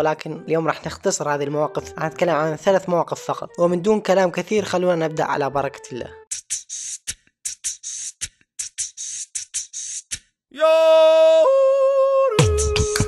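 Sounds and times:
hissing hi-hat beats: 6.3s - 10.2s, 12.4s - 13.0s
person singing a long note: 10.6s - 13.0s.

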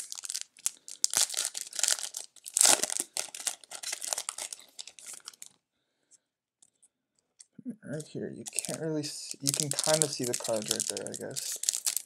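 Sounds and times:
plastic wrapper tearing and crinkling: 0.0s - 5.6s, 8.4s - 12.0s.

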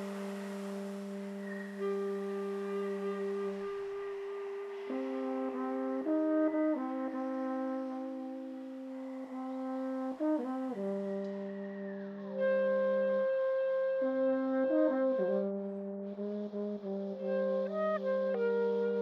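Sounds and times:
trombone held notes: 0.0s - 11.7s
clarinet held notes: 0.0s - 19.0s.

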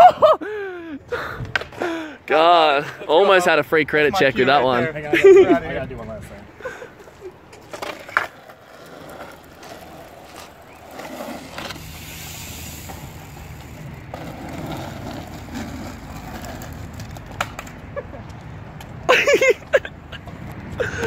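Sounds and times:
skateboard wheels rolling on asphalt: 1.0s - 21.0s
skateboard clacking onto asphalt: 1.5s - 1.8s, 7.4s - 12.0s, 13.6s - 19.0s.

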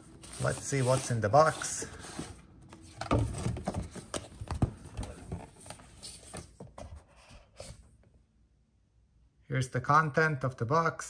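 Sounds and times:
box being opened and handled: 0.0s - 7.8s.

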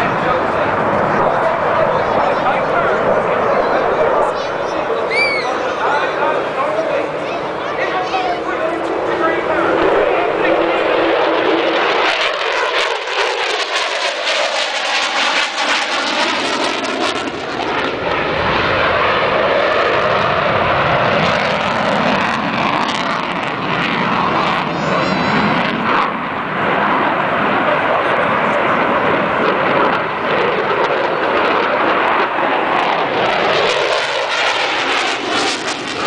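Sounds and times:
fighter jet engine roaring: 0.0s - 36.0s.

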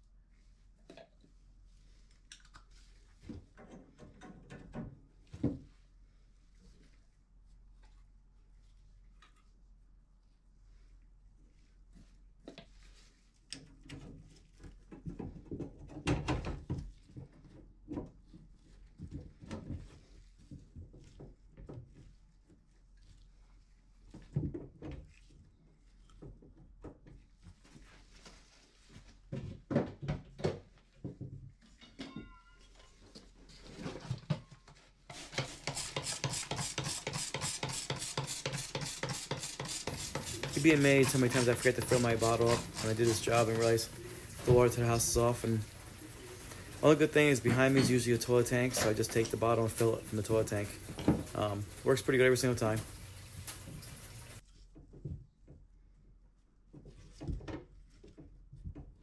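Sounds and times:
spray bottle squirting: 35.3s - 44.4s.

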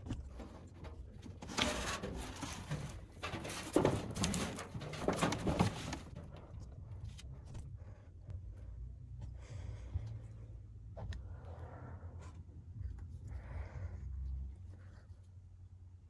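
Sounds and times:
sheet metal scraping: 0.4s - 6.5s.

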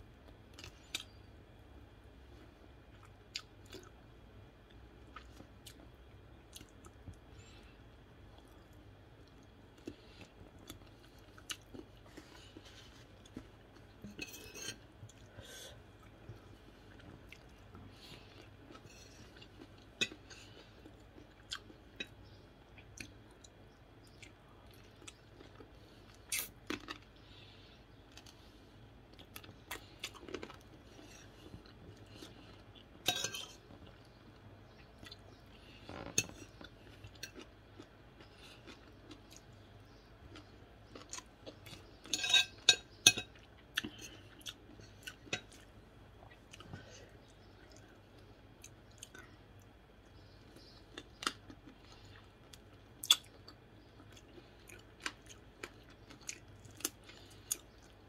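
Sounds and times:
person chewing and crunching food: 0.2s - 58.0s
spoon clinking against plate: 42.1s - 43.3s.

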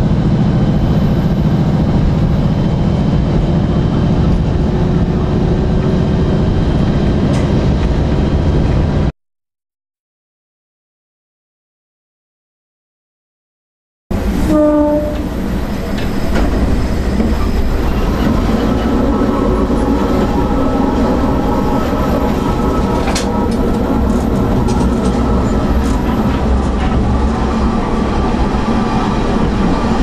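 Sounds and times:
train rumbling along track: 0.0s - 9.1s, 14.1s - 30.0s
train horn blast: 14.4s - 15.4s
rail-joint clicks: 15.1s - 19.0s, 22.2s - 27.3s.

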